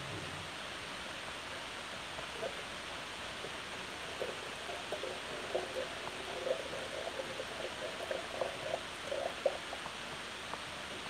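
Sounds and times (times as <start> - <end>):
static hiss: 0.0 - 11.0
water gurgling in kettle: 2.0 - 10.6.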